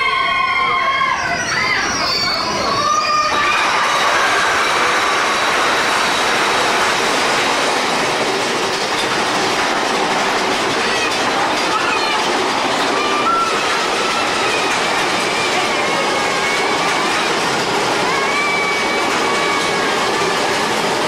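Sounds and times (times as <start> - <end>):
roller coaster rumble and clatter: 0.0 - 21.0
short squeals: 1.1 - 3.8.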